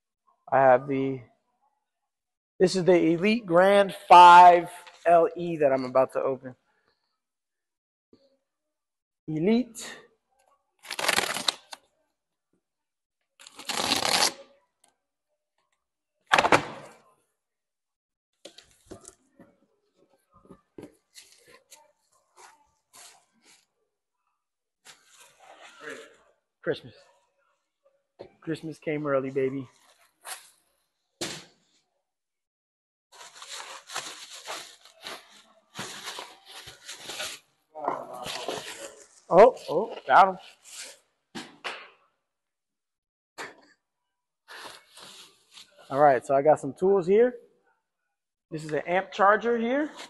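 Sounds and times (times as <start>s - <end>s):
packing tape tearing: 10.8s - 11.8s, 13.4s - 14.5s, 33.2s - 37.5s
plastic wrap rustling: 33.1s - 37.5s.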